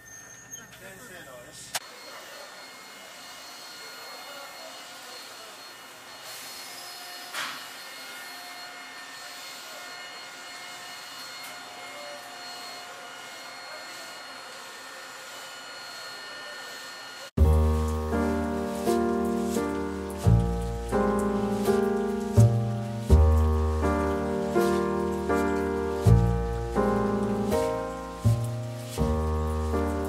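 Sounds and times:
train interior hiss and hum: 17.4 - 30.0.

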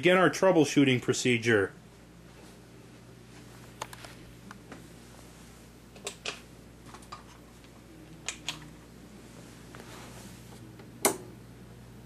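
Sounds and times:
faint low hum: 0.0 - 12.0
television switch click: 10.8 - 11.3.

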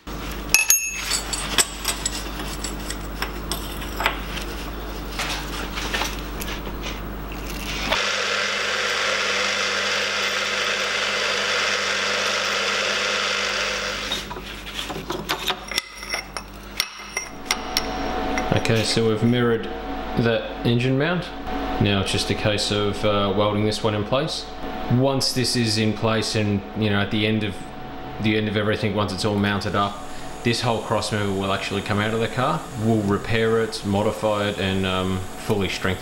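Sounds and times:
metal clinking: 0.5 - 4.2
metal clatter and scraping: 0.8 - 6.2
drill press cutting metal: 7.6 - 14.3.

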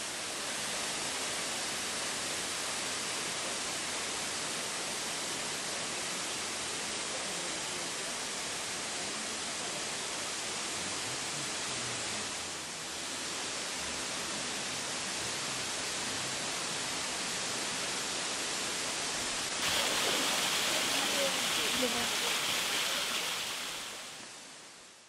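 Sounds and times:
water rushing: 17.2 - 24.4.

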